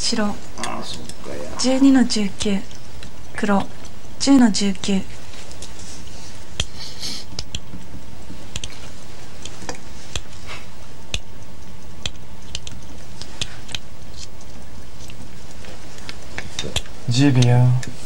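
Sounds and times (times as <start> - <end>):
steady hiss and hum: 0.0 - 18.0
go stones clicking: 0.1 - 5.8, 6.4 - 18.0.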